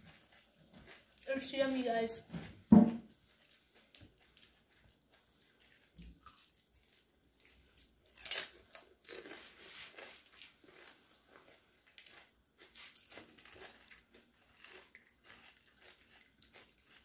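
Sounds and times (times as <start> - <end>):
crisp shells being crunched: 8.1 - 17.0.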